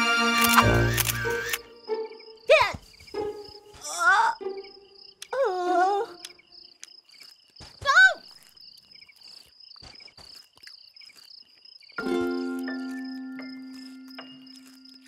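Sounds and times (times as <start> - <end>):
crickets chirping: 0.0 - 15.0.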